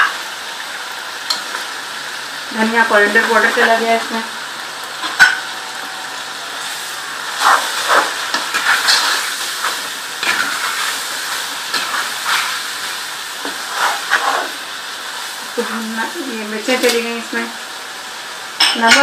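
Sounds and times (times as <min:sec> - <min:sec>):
chicken sizzling in hot oil: 0:00.0 - 0:19.0
wooden spatula scraping pan: 0:07.3 - 0:14.7.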